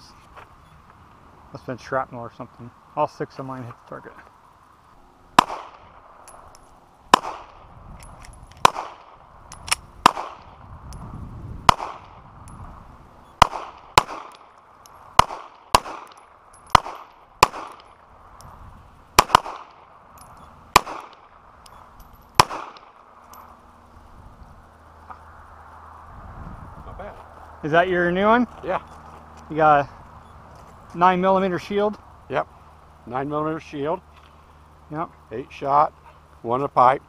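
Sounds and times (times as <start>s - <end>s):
handgun shots echoing: 5.4s - 5.9s, 8.6s - 10.5s, 13.4s - 14.5s, 15.2s - 17.9s, 19.2s - 19.8s, 20.8s - 21.3s, 22.4s - 23.0s.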